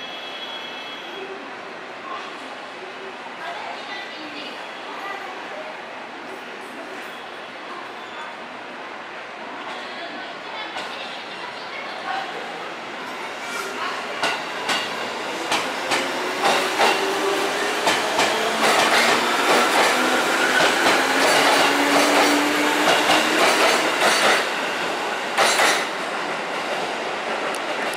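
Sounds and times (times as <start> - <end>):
electric train hum: 14.2 - 27.9
train wheels clicking over rail joints: 25.4 - 26.0.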